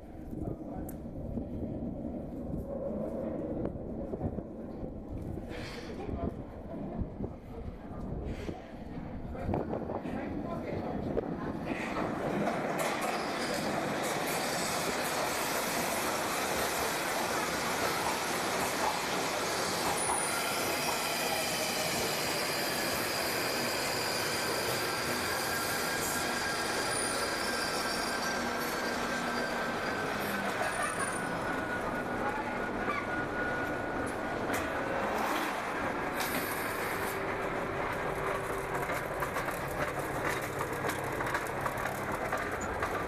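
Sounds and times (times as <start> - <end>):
train rumble: 0.0 - 43.0
train wheel squeal and whine: 12.3 - 43.0.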